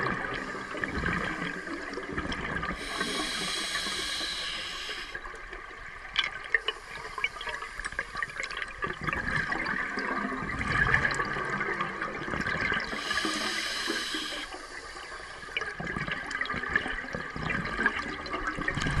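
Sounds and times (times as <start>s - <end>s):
regulator hissing inhalation: 2.8s - 5.2s, 12.9s - 15.5s
diver exhaling bubbles: 18.4s - 19.0s.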